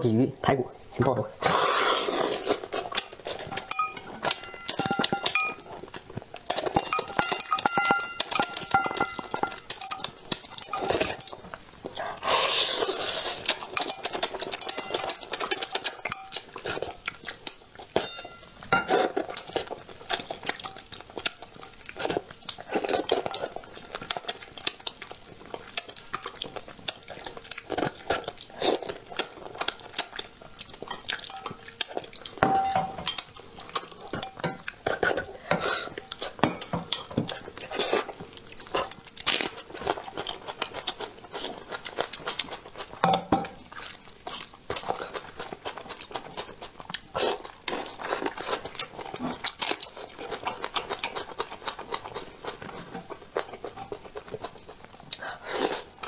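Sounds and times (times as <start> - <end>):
chewing sounds: 1.4 - 56.0
chopsticks clinking on dishes: 2.9 - 5.8, 6.5 - 11.4, 13.6 - 16.6, 18.0 - 19.6, 30.9 - 33.4.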